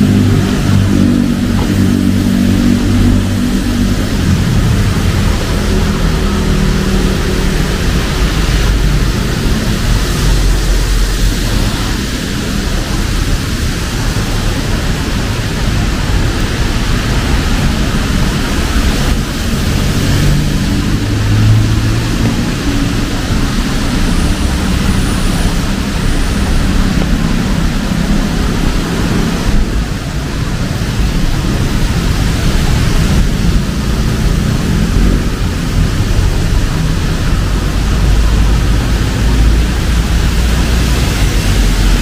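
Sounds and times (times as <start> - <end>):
rain hiss: 0.0 - 42.0
vehicle engines rumbling: 0.0 - 42.0
vehicle passing: 0.0 - 42.0.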